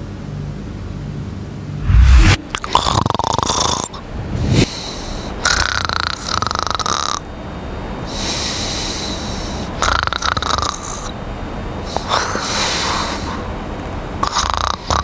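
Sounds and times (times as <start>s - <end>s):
man snoring: 5.5s - 7.2s, 9.8s - 11.1s, 14.2s - 15.0s.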